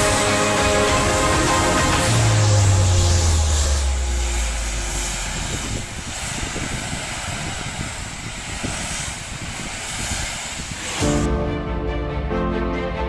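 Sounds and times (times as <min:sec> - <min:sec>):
high-pressure water spraying on car: 0:00.0 - 0:11.3.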